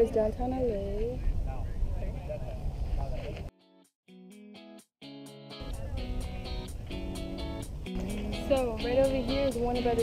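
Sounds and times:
wind rumbling on microphone: 0.0s - 3.5s
plucked guitar notes: 3.6s - 10.0s.

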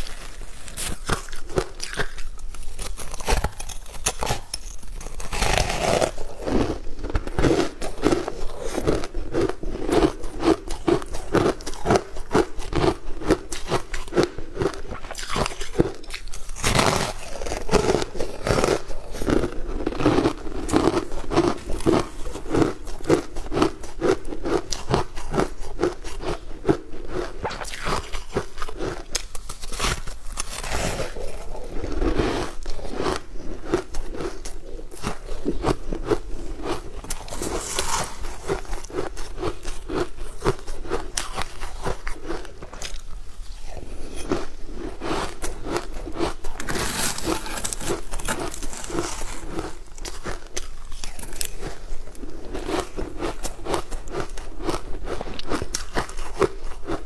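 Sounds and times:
crunchy chewing: 0.0s - 57.0s.

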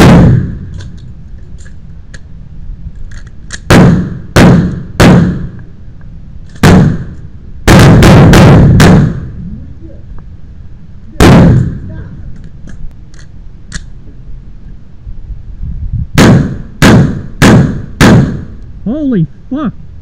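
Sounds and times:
pistol shots with echo: 0.0s - 0.6s, 3.7s - 5.5s, 6.6s - 7.1s, 7.7s - 9.3s, 11.2s - 11.9s, 16.2s - 18.6s.

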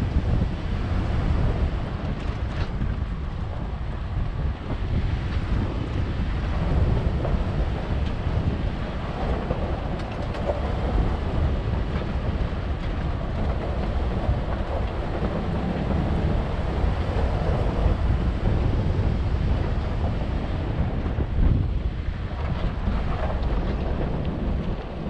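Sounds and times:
engine and tyres rumbling: 0.0s - 25.0s
wind buffeting microphone: 0.0s - 25.0s.

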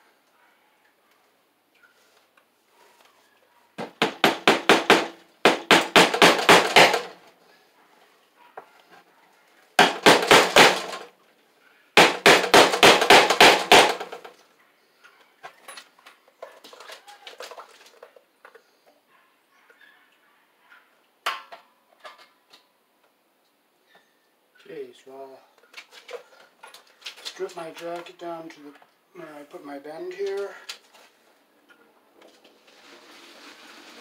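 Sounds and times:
hammer tapping staples into wood: 3.8s - 7.2s, 9.8s - 11.0s, 12.0s - 14.2s.

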